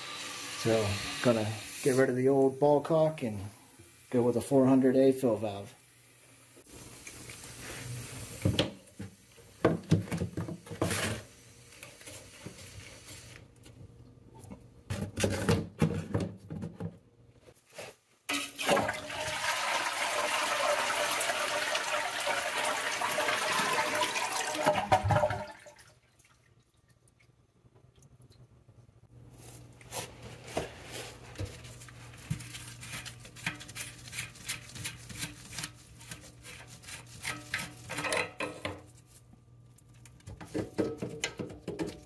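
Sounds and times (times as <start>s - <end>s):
toilet flushing: 0.0s - 2.2s, 18.3s - 26.4s.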